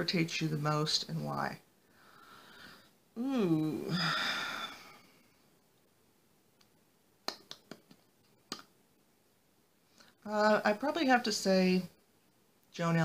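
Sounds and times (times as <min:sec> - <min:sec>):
mouth clicks and lip smacks: 0:06.6 - 0:08.8.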